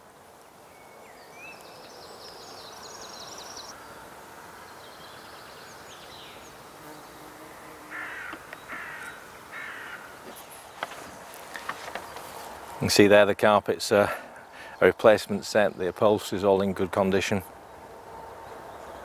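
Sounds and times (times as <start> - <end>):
outdoor background noise: 0.0 - 19.0
crow cawing: 7.9 - 10.2.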